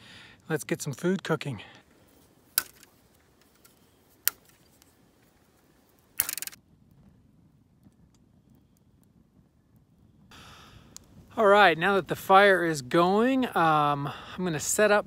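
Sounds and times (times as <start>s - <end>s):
sharp clicks: 5.9s - 6.6s.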